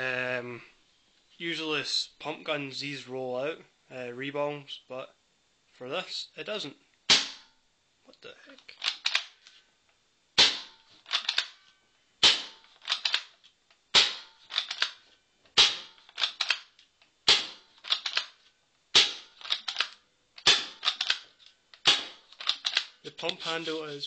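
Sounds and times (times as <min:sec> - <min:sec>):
paintball pistol shots: 0:07.1 - 0:07.5, 0:10.4 - 0:10.8, 0:12.2 - 0:13.2, 0:14.0 - 0:14.3, 0:15.6 - 0:16.0, 0:17.3 - 0:17.6, 0:18.9 - 0:19.4, 0:20.4 - 0:21.2, 0:21.8 - 0:22.3.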